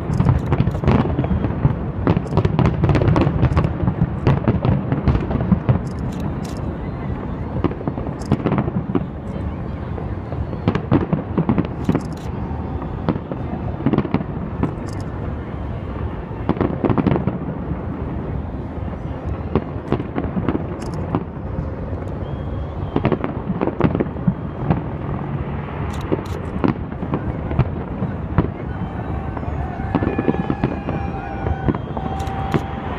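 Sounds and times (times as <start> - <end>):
firework shells bursting with bangs: 0.0 - 6.4
continuous low rumble: 0.0 - 32.9.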